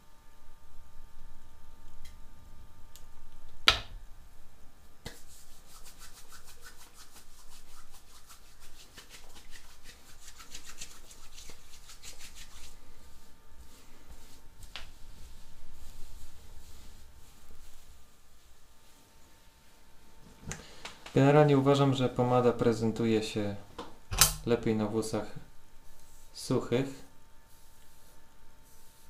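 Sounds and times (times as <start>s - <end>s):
hands rubbing together: 5.0s - 19.0s
hands rubbing hair: 5.0s - 19.4s, 25.9s - 26.7s, 27.5s - 29.0s
sharp click: 24.1s - 24.4s.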